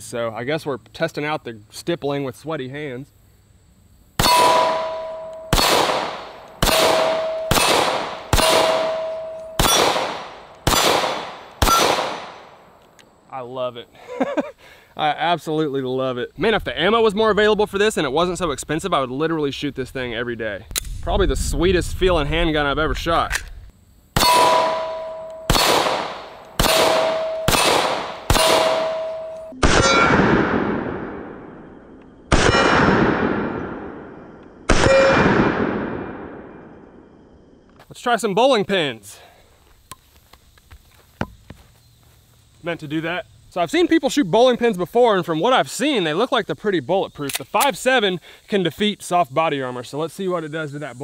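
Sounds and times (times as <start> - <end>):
steel targets ringing: 4.2 - 5.7, 6.6 - 10.1, 24.2 - 25.8, 26.6 - 30.4
pistol shots with echo: 4.2 - 12.6, 24.2 - 31.6, 32.3 - 36.7.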